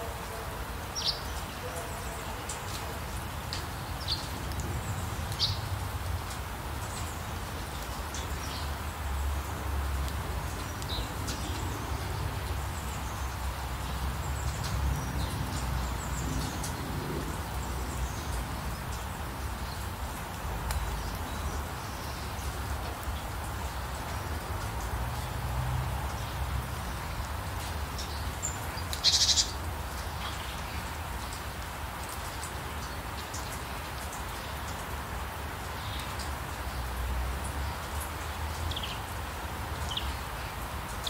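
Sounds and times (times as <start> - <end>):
steady rain: 0.0 - 41.0
birds chirping: 27.9 - 30.9.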